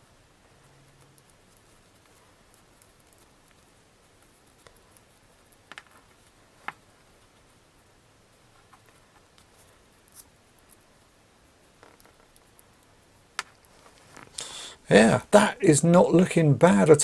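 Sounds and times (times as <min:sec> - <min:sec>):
small plastic clicks and taps: 0:04.6 - 0:06.8.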